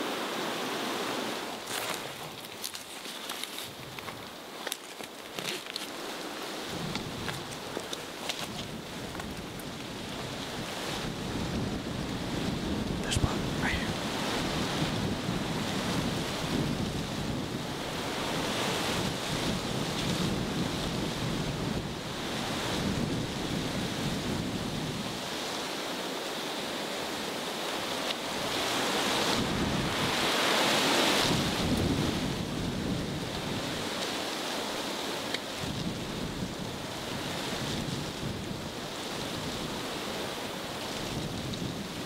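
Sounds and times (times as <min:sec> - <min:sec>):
wind blowing through trees: 0:00.0 - 0:42.0
wind rumbling on microphone: 0:00.0 - 0:42.0.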